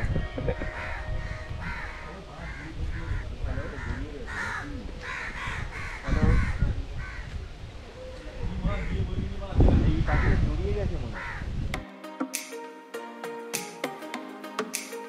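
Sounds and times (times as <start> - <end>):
crows cawing: 0.0 - 7.4, 8.7 - 9.2, 10.1 - 10.5, 11.2 - 11.5.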